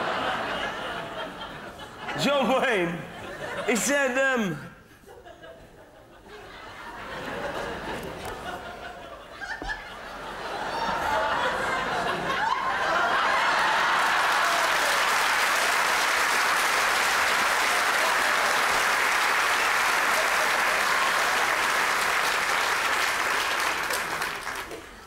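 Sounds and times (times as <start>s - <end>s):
audience laughter: 0.0s - 4.1s, 4.9s - 15.0s
audience applauding: 12.4s - 25.0s.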